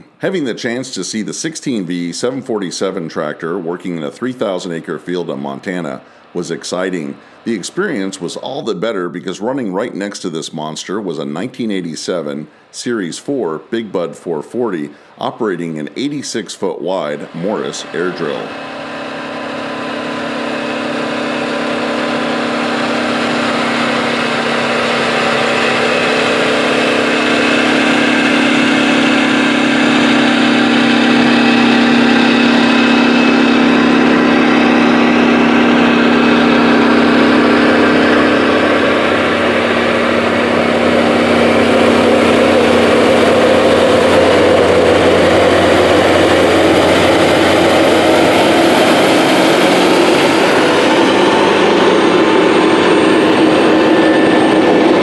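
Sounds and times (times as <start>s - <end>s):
second tractor engine: 0.0s - 55.0s
tractor diesel engine under load: 0.0s - 55.0s.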